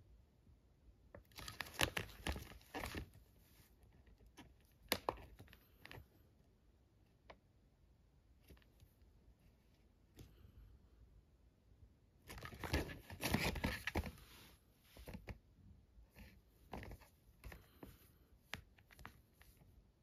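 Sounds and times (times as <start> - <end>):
plastic cable rustling and crackling: 1.1 - 6.1, 12.3 - 15.4, 16.1 - 19.8.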